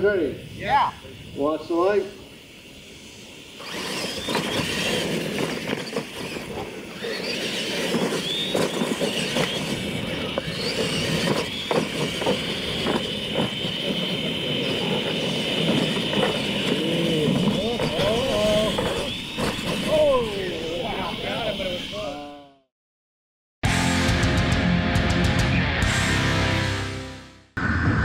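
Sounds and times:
rc truck motors whining: 1.5 - 22.4
trucks knocking and clattering: 3.7 - 20.2.

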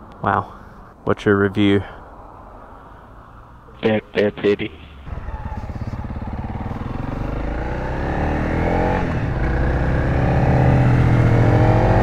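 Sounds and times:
motorcycle engine accelerating: 5.0 - 12.0.

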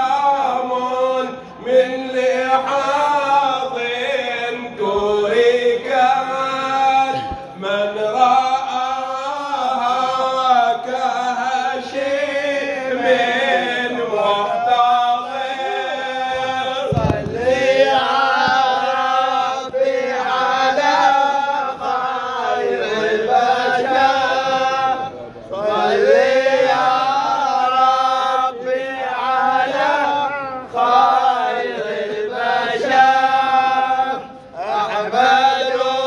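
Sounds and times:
men chanting a devotional song: 0.0 - 36.0
dull thump: 16.9 - 17.7.

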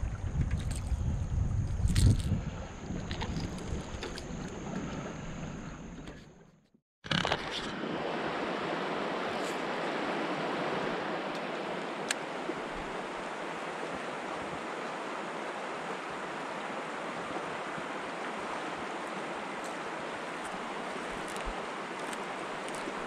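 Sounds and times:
river water rushing over rocks: 7.7 - 23.0.

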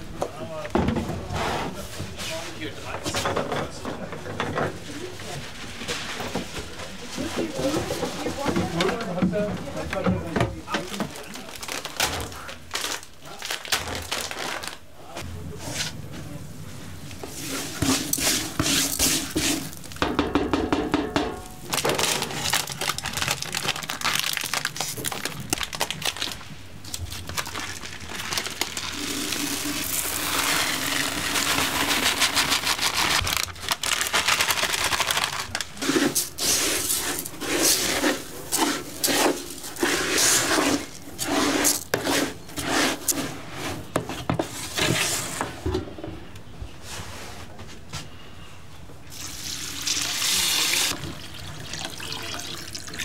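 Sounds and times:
noodles sizzling in oil: 27.4 - 32.6
dry rice pouring: 27.6 - 33.1.

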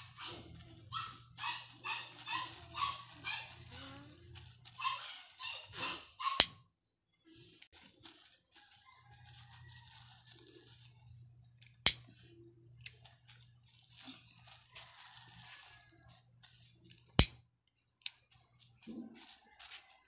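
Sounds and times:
plastic sheet crinkling: 0.0 - 6.0, 7.7 - 11.6, 12.8 - 17.2, 18.2 - 20.0.

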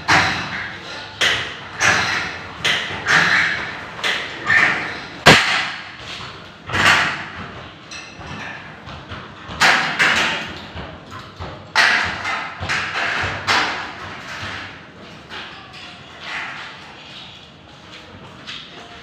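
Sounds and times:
metal studs knocking and clanking: 0.0 - 5.9, 9.4 - 16.8.

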